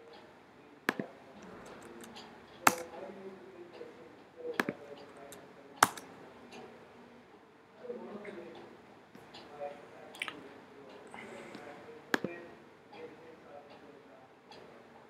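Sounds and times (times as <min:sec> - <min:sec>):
keyboard and mouse clicks: 0:01.7 - 0:02.8, 0:04.6 - 0:06.0
faint keyboard taps: 0:11.6 - 0:12.4.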